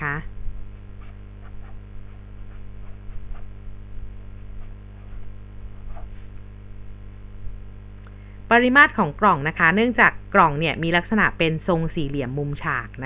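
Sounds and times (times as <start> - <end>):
steady low hum: 0.0 - 13.0
marker pen scratching paper: 0.9 - 6.2.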